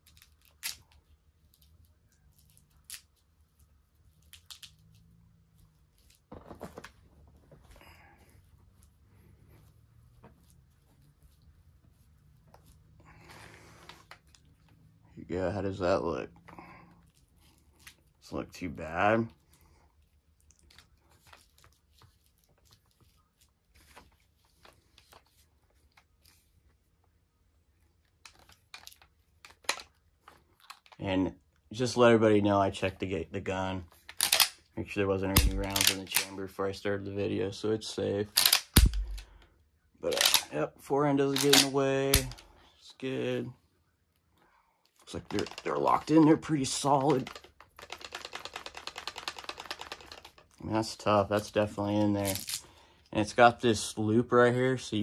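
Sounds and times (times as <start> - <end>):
shotgun clicks and taps: 34.2 - 34.6, 35.4 - 36.3, 38.4 - 39.2, 41.3 - 42.4, 47.2 - 50.4
light clicks of shotgun handling: 35.4 - 36.4, 40.1 - 40.5, 41.3 - 42.5.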